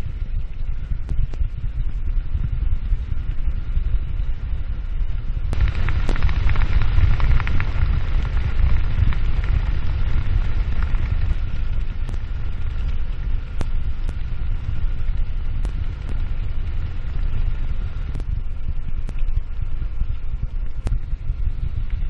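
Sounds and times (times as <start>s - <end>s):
crackling grit-like patter: 0.0s - 22.0s
wind buffeting microphone: 0.0s - 22.0s
tyres rumbling on rough asphalt: 5.6s - 18.2s.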